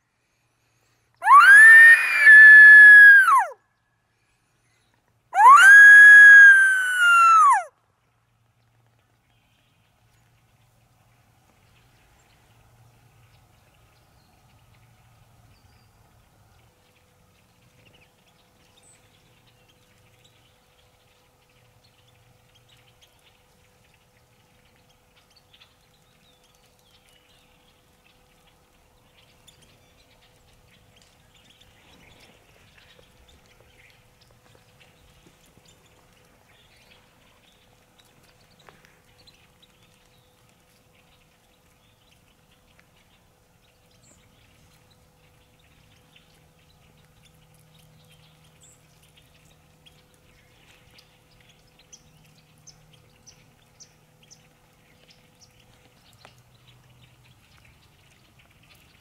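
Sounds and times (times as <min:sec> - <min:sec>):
small ticks and clicks: 0:16.0 - 0:59.0.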